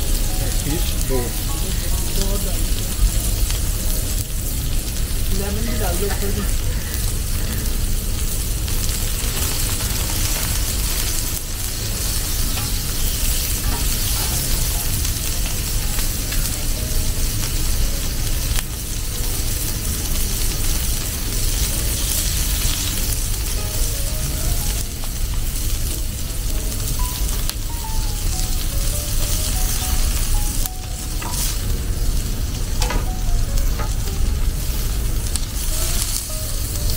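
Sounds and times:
fish sizzling in oil: 0.0s - 36.9s.

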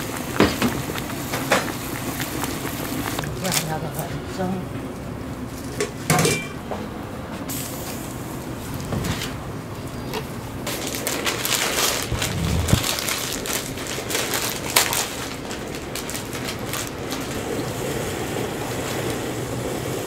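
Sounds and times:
plastic packet crinkling: 10.7s - 17.4s.

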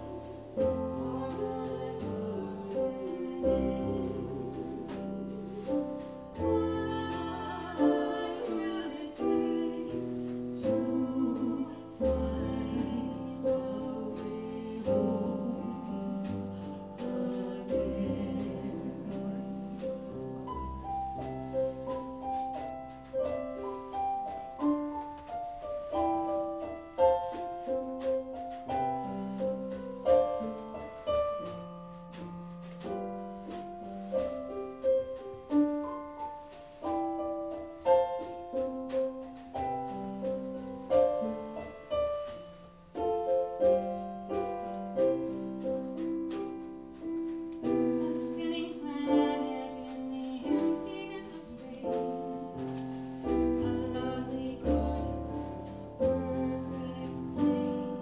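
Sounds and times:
person singing: 0.0s - 19.9s, 47.6s - 52.4s, 53.3s - 58.0s
piano accompaniment: 0.0s - 58.0s.

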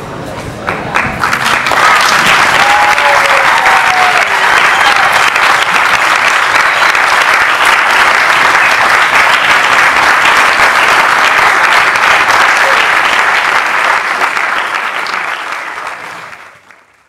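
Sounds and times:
audience applauding: 0.7s - 17.0s
crowd crying out: 2.6s - 5.4s.

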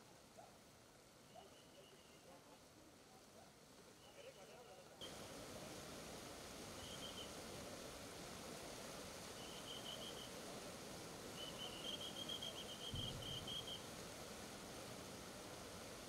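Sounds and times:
river rushing in flood: 0.0s - 16.0s
high chirping trills: 11.4s - 13.8s.

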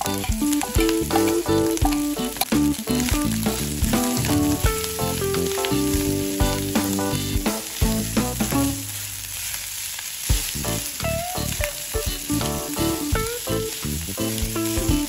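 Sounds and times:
light background music: 0.0s - 8.8s
rice sizzling in a frying pan: 0.0s - 15.0s.

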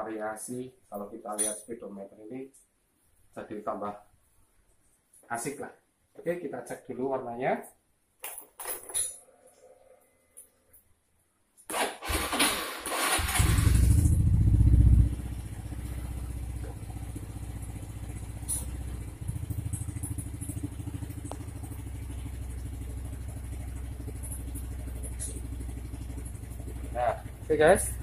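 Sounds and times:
motor scooter engine idling: 13.0s - 28.0s.

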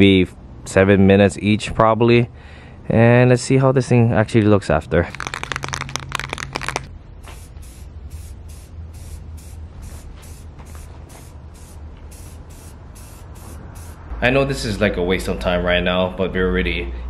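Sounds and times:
spray can ball rattling: 5.1s - 14.0s
spray can hissing bursts: 5.1s - 14.1s.

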